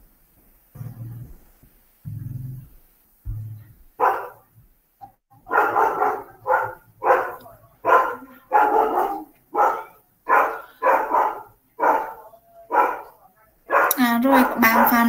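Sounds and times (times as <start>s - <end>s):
dog barking: 4.0s - 4.5s, 5.4s - 15.0s.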